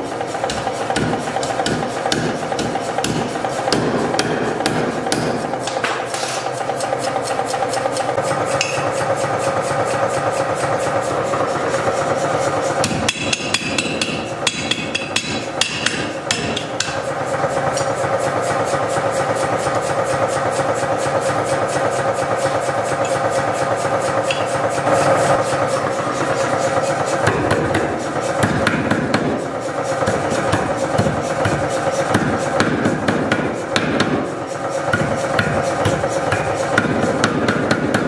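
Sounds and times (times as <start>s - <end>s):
power hammer striking hot steel: 0.1s - 9.2s, 12.8s - 18.0s, 23.0s - 24.8s, 27.2s - 38.0s.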